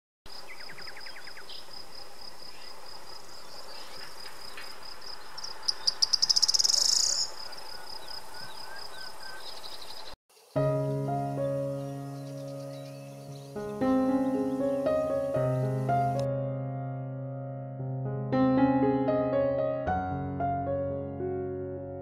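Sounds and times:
insect chirping: 0:00.3 - 0:10.6.

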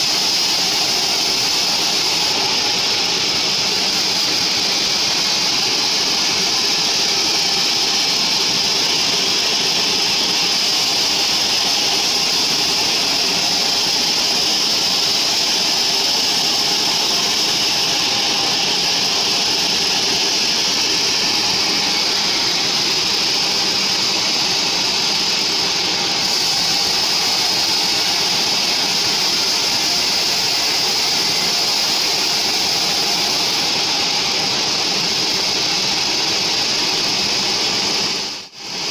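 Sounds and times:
blade hissing through wood: 0:00.0 - 0:36.9.

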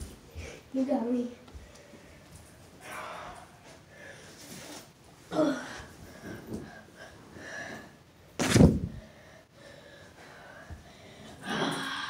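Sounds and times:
loud thump: 0:08.4 - 0:09.0.

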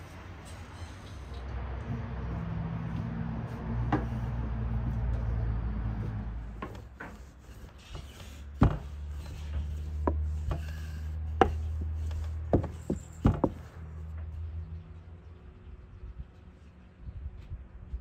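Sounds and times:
rubbing: 0:04.0 - 0:13.7.

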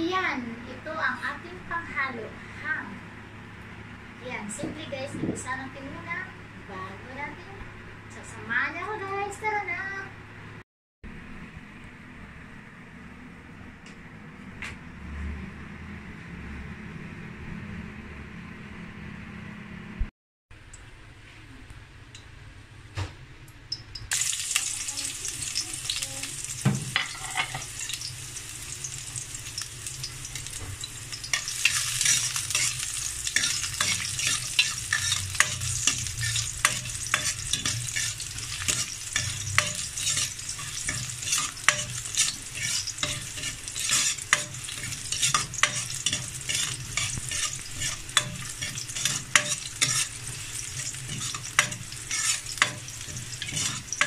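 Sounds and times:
garlic sizzling in oil: 0:24.0 - 0:54.0
spatula scraping a wok: 0:31.3 - 0:54.0.

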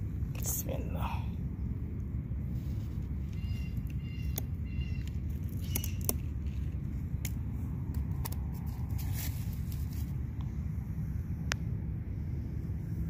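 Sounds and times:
steady low rumble: 0:00.0 - 0:13.0
stems snapping and being cut: 0:03.4 - 0:09.8.

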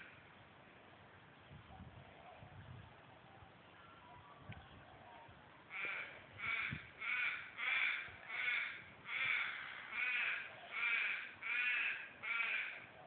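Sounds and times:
crow cawing: 0:05.7 - 0:12.9.

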